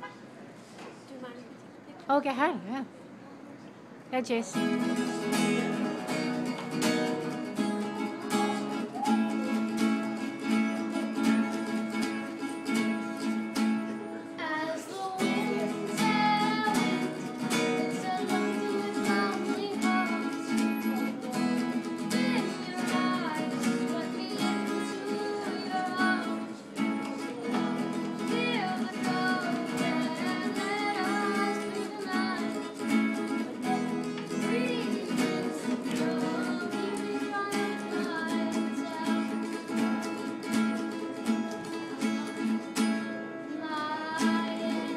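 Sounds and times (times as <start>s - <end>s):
acoustic guitar strumming: 4.2s - 44.9s
boy singing: 14.4s - 40.3s, 43.5s - 44.9s.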